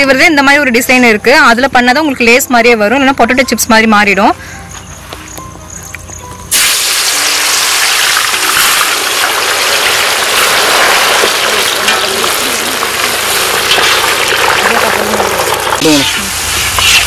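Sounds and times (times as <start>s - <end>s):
potato slices sizzling in oil: 6.5s - 17.0s.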